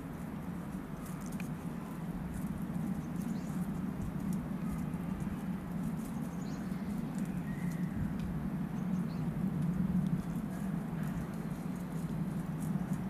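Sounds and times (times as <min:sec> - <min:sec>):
bird stepping through dry leaves: 0:00.0 - 0:13.0
steady low rumble: 0:00.0 - 0:13.0
faint bird chirps: 0:06.0 - 0:09.3.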